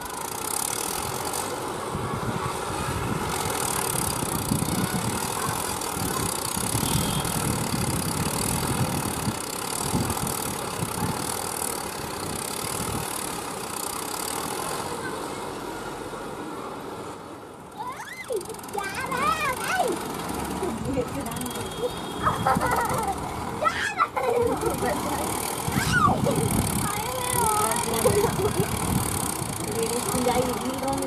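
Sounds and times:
tractor diesel engine running: 18.3s - 31.0s.

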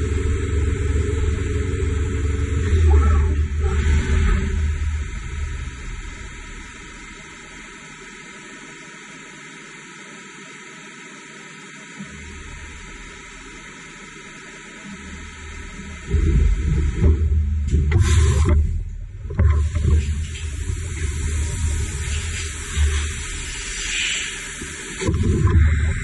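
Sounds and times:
low machine hum: 0.0s - 26.0s
machine hiss: 19.7s - 26.0s.

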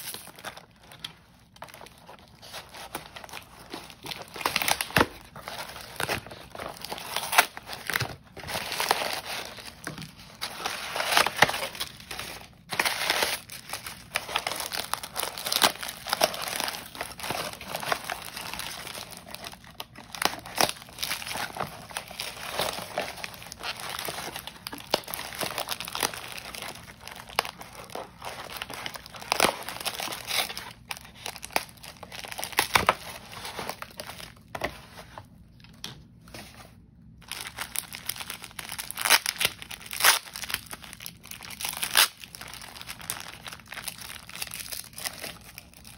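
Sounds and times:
cardboard tearing: 0.0s - 35.2s
packing paper crinkling: 0.0s - 45.9s.

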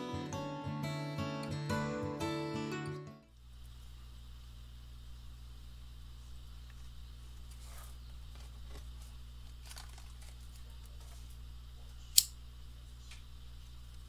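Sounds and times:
stick snapping: 12.2s - 12.4s.

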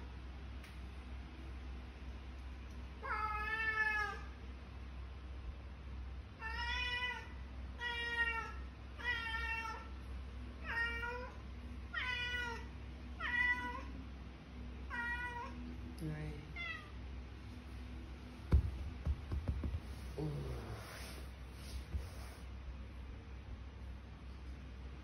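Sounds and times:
cat meowing: 3.0s - 4.3s, 10.6s - 13.9s, 14.9s - 15.6s.

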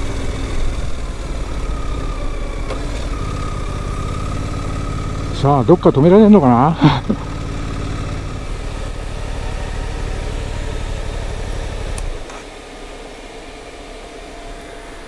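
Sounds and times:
motorcycle engine idling: 0.0s - 12.2s.

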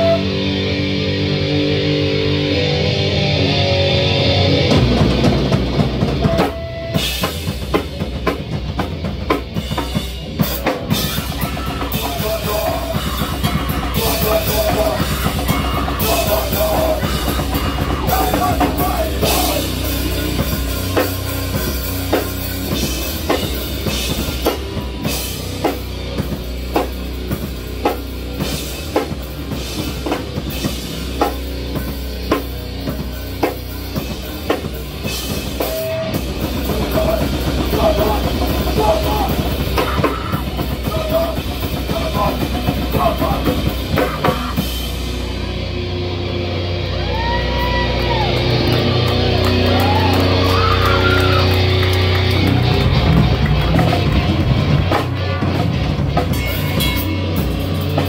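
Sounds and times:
live rock band playing: 0.0s - 58.0s
shouted singing: 11.0s - 19.9s, 36.0s - 43.7s, 46.9s - 52.9s.

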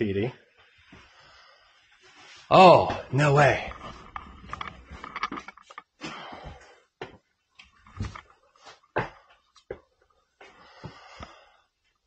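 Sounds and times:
people breathing: 0.9s - 2.4s, 6.0s - 6.9s, 10.4s - 11.8s.

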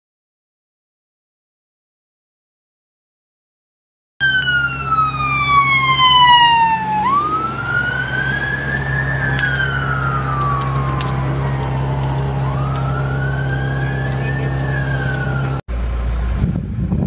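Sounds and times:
emergency siren wailing: 4.2s - 15.6s
low engine hum: 4.2s - 17.0s.

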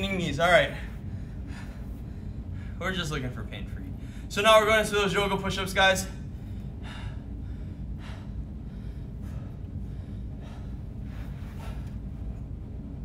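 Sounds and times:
steady low hum: 0.0s - 13.0s
man breathing heavily: 0.4s - 3.1s, 3.9s - 4.4s, 6.0s - 13.0s.

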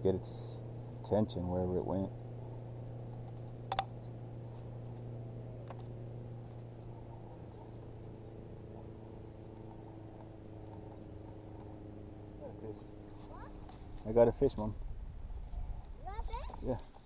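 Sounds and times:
sharp click: 3.7s - 3.9s.

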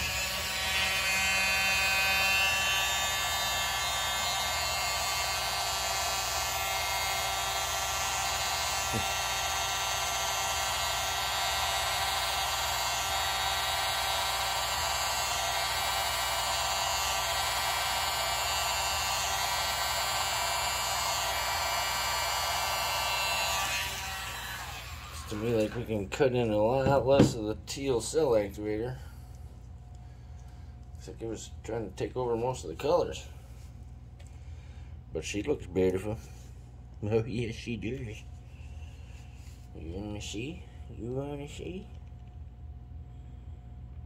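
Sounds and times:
hair dryer running: 0.0s - 25.9s.

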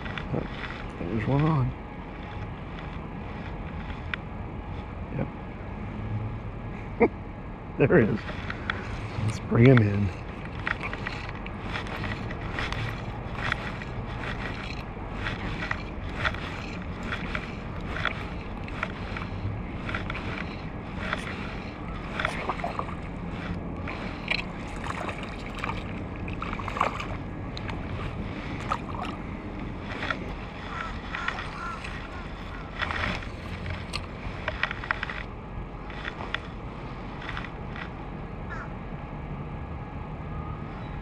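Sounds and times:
wind: 0.0s - 41.0s
water sloshing and splashing: 8.2s - 37.9s.

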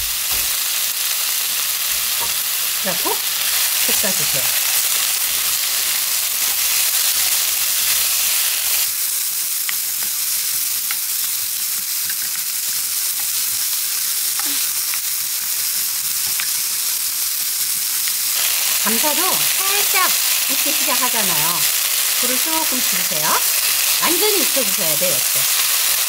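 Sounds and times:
food sizzling in a wok: 0.0s - 26.0s.

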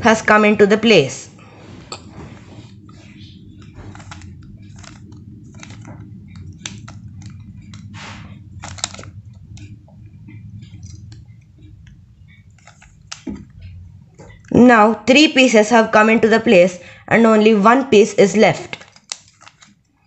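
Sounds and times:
puzzle cube clicking as turned: 3.6s - 7.8s, 8.6s - 9.7s, 12.6s - 13.3s, 18.7s - 19.8s.

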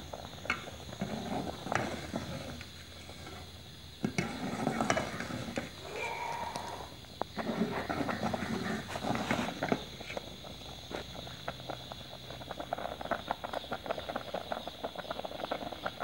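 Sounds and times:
milk boiling with bubbles popping: 0.0s - 16.0s
spoon stirring in a pot: 4.0s - 5.6s.

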